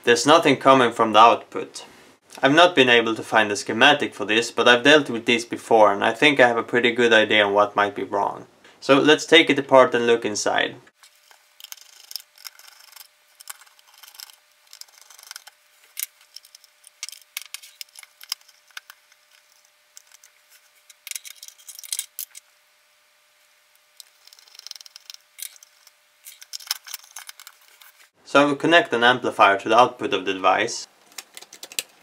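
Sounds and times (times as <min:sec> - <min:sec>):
plastic parts clicking and scraping: 0:11.0 - 0:22.4, 0:24.0 - 0:28.1, 0:31.0 - 0:32.0.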